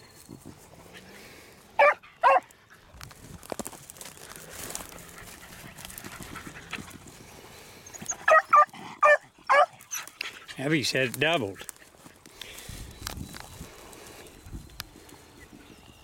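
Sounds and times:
dogs rustling through brush: 0.0s - 16.0s
dogs baying: 1.8s - 2.8s, 4.7s - 10.6s.

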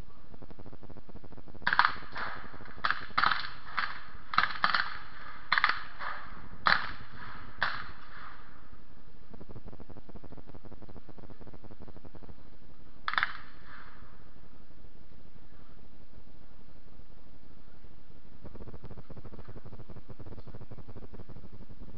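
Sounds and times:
black-powder gunshots: 1.6s - 8.8s.

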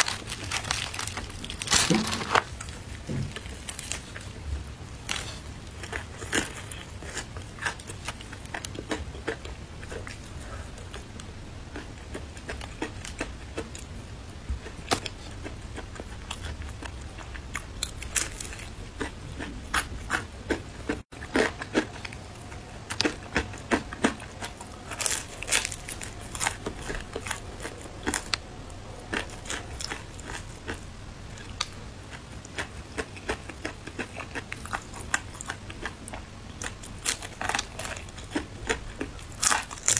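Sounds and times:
fried chicken crunching: 0.0s - 4.4s, 14.6s - 39.9s
wet chewing: 14.6s - 39.9s.

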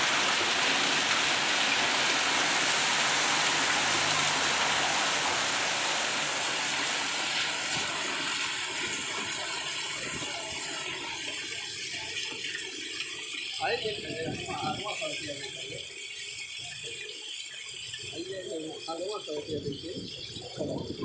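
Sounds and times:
heavy rain and hail on street: 0.0s - 10.8s.

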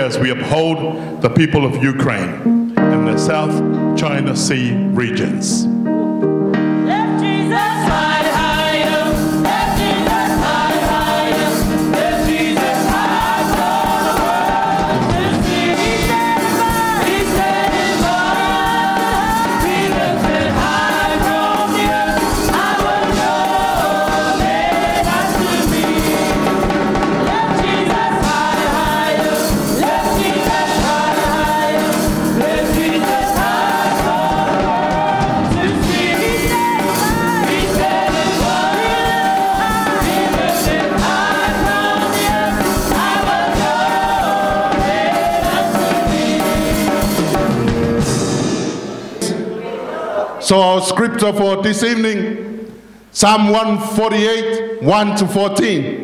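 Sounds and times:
live instrumental accompaniment: 0.0s - 50.3s
group singing a gospel song: 6.8s - 50.6s.

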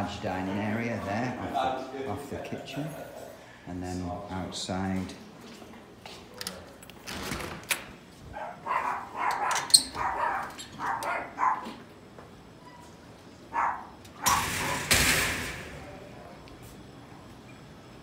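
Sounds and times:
dog barking: 8.4s - 11.8s, 13.5s - 14.8s.

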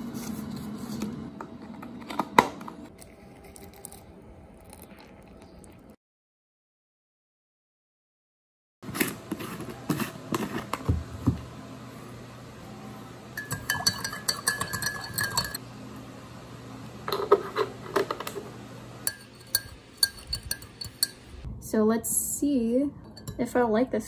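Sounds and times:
metal spoon clinking in a mug: 13.4s - 15.6s, 19.0s - 21.2s.

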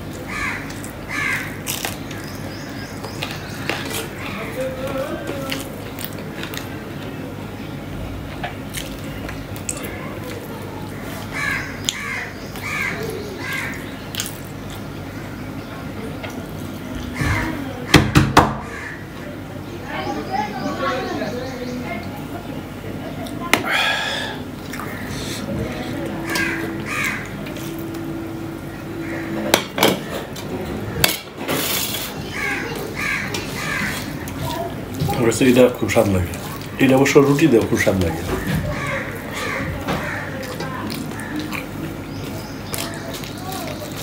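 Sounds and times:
man chewing food: 0.0s - 7.1s, 7.7s - 15.2s, 23.2s - 44.0s
bird calling: 11.0s - 14.3s, 23.7s - 31.0s.

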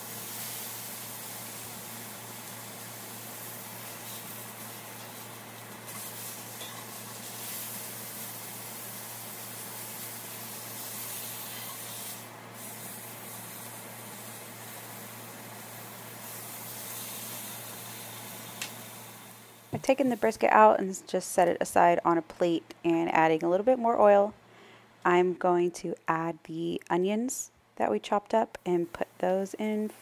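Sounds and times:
meat sizzling in a skillet: 0.0s - 20.3s.

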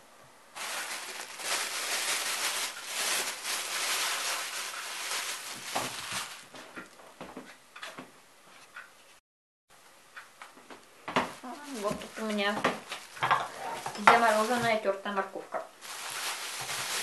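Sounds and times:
plastic bag crinkling: 0.6s - 7.0s, 11.3s - 14.8s, 15.5s - 17.0s.

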